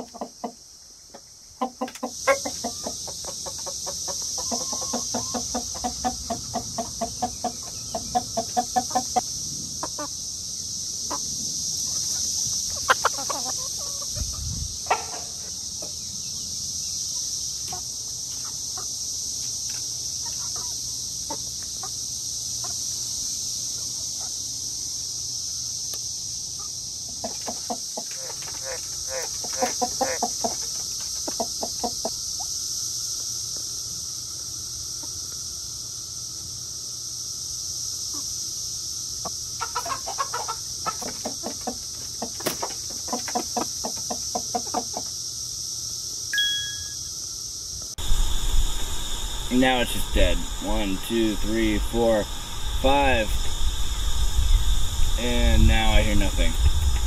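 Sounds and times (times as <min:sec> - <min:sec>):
hens clucking: 0:00.0 - 0:10.2, 0:11.9 - 0:15.6, 0:26.6 - 0:32.2, 0:39.2 - 0:45.2
high-pitched insect buzz: 0:01.9 - 0:57.0.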